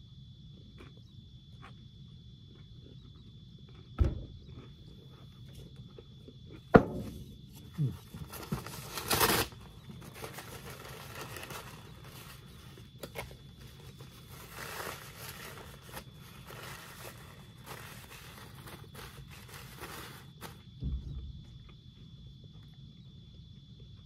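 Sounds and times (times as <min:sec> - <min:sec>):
sharp knock: 0:06.8 - 0:07.3
paper rustling and crinkling: 0:08.0 - 0:20.7
paper towel tearing: 0:08.2 - 0:12.4, 0:13.9 - 0:20.6.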